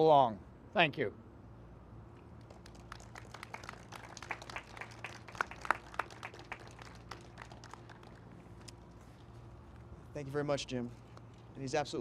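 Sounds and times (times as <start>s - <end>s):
small group clapping: 2.4s - 8.8s.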